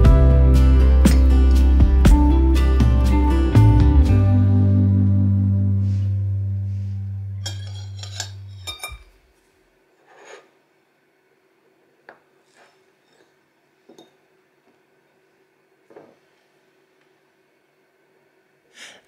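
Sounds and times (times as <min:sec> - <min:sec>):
acoustic guitar music: 0:00.0 - 0:08.5
china clinks: 0:07.4 - 0:09.0.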